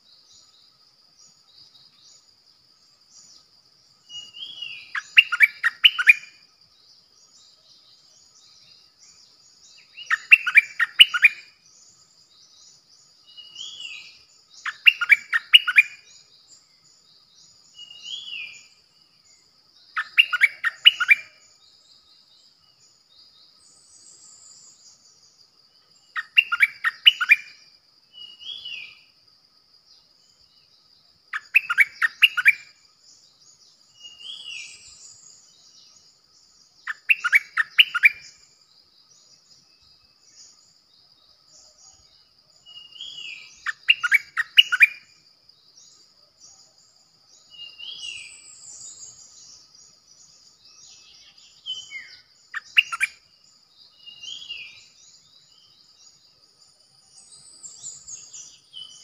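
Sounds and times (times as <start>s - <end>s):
bulbul singing: 4.2s - 6.4s, 9.4s - 12.0s, 20.0s - 21.5s, 36.6s - 38.5s, 42.7s - 45.1s.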